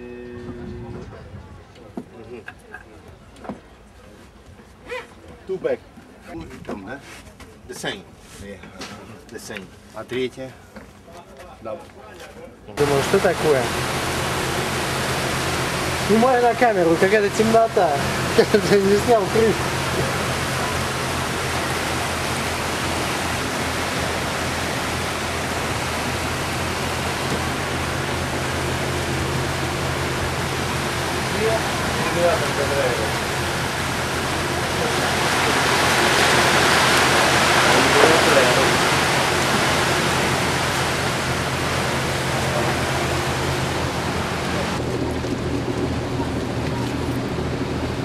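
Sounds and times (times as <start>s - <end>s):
low engine drone: 0.0s - 1.8s, 12.7s - 48.0s
wind: 0.0s - 48.0s
water rushing in boat wake: 12.8s - 48.0s.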